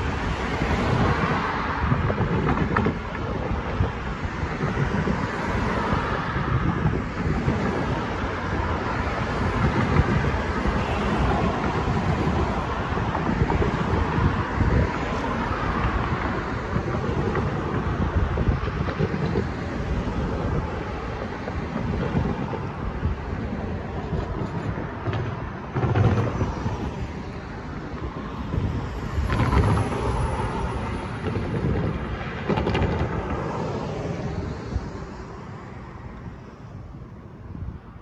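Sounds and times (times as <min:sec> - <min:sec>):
cars passing close by: 0:00.0 - 0:38.0
wind buffeting microphone: 0:00.0 - 0:38.0.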